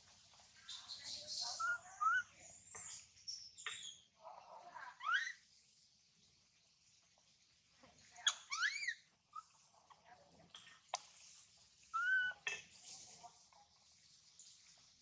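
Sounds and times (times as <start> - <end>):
infant monkey squealing: 1.6 - 2.3, 5.0 - 5.4, 8.2 - 9.5, 11.9 - 12.4.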